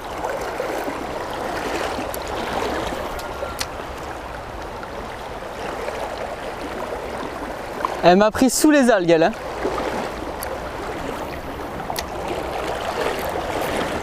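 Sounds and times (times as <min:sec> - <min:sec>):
river rushing over stones: 0:00.0 - 0:14.0.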